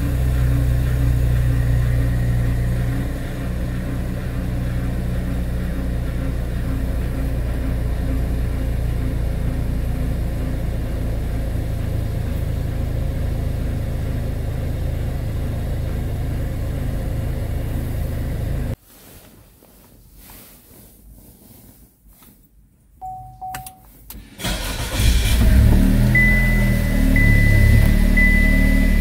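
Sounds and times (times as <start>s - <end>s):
car engine low rumble: 0.0s - 18.8s, 23.0s - 29.0s
short beep: 23.0s - 24.0s, 26.1s - 29.0s.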